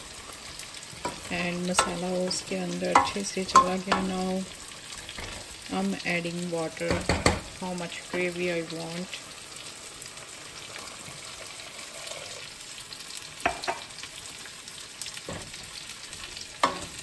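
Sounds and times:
curry sizzling in a pot: 0.0 - 17.0
wooden spatula knocking on pot: 1.0 - 4.3.

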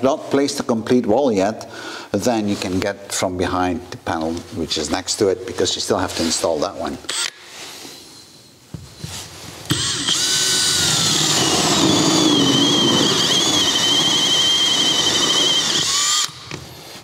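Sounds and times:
drill cutting drywall: 9.7 - 16.8.

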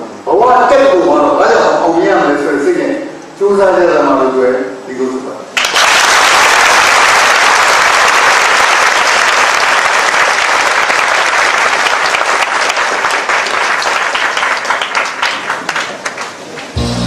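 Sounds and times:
audience applauding: 5.6 - 17.0.

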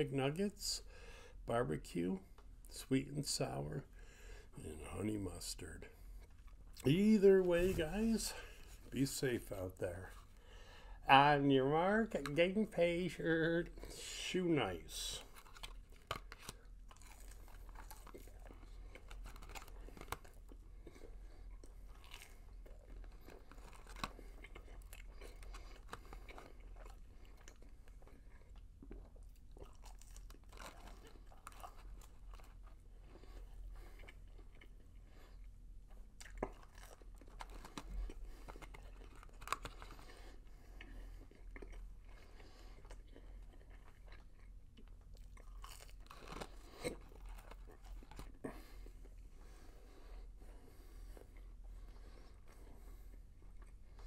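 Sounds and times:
chewing and biting: 15.2 - 54.0.

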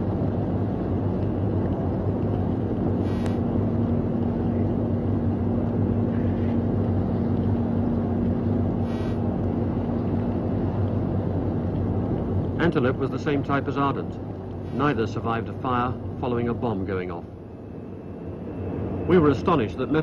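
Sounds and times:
wind noise on microphone: 0.0 - 12.6
low hum: 0.0 - 20.0
low rumble: 0.0 - 20.0
brief crackle: 3.1 - 3.4.

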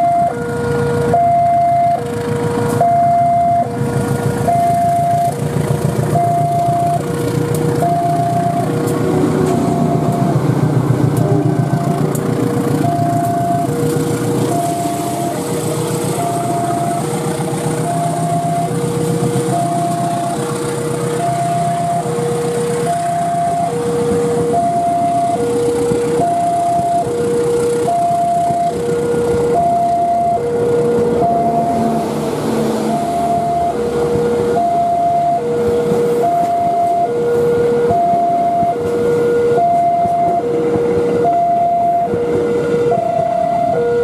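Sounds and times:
level crossing alarm two tones: 0.0 - 0.4, 1.1 - 2.1, 2.8 - 3.7, 4.5 - 5.4, 6.1 - 7.0, 7.8 - 8.8, 9.4 - 10.4, 12.8 - 13.8, 14.4 - 20.6, 21.2 - 22.2, 22.8 - 25.6, 26.2 - 27.1, 27.8 - 28.8, 29.6 - 38.9, 39.5 - 40.6, 41.2 - 42.2, 42.9 - 44.0
passing train rumble: 0.0 - 44.0.

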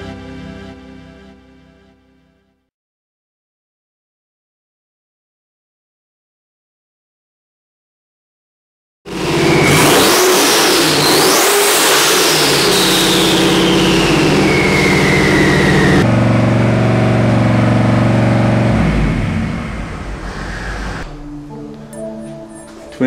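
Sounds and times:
engine running hard: 9.1 - 21.1
turbo whine: 12.4 - 21.6.

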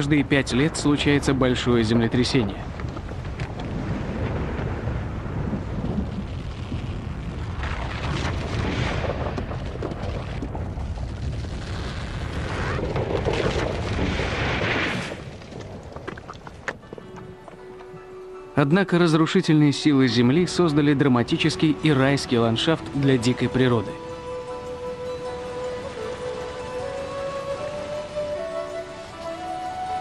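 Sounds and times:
deep continuous rumble: 0.0 - 17.5
rocks crashing and clattering: 2.5 - 17.7.

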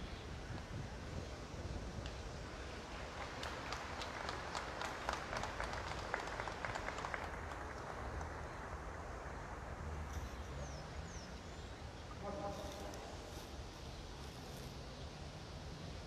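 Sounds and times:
crowd clapping: 2.9 - 8.4.

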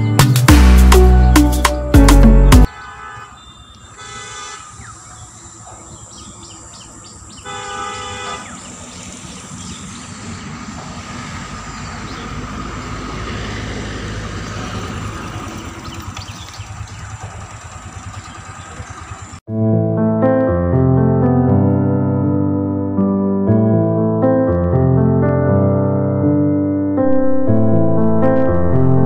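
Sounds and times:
horn sounding: 2.0 - 5.0, 7.4 - 8.6
low outdoor rumble: 14.2 - 19.4.

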